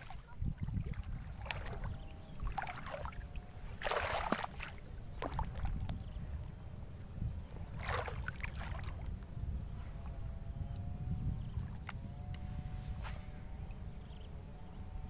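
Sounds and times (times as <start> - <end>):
water sloshing and splashing: 0.0 - 5.9, 7.6 - 9.1
wind rumble on microphone: 0.0 - 15.0.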